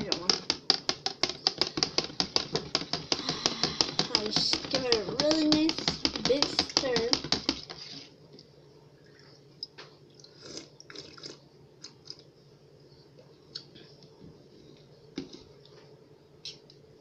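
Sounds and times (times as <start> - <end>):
liquid swishing: 3.8 - 8.2.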